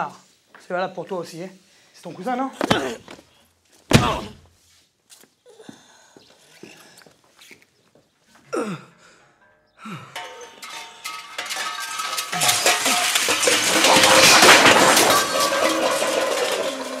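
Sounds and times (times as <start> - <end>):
sheet metal clanging and rattling: 10.2 - 17.0.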